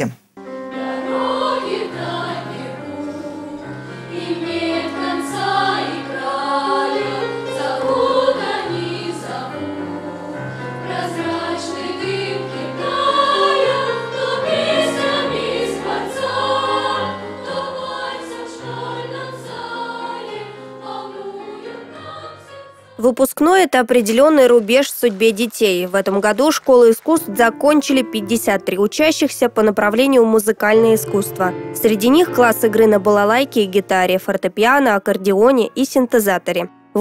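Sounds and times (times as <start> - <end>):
electric keyboard sustained notes: 0.4 - 23.0, 27.1 - 34.4
children's choir singing: 0.6 - 23.0.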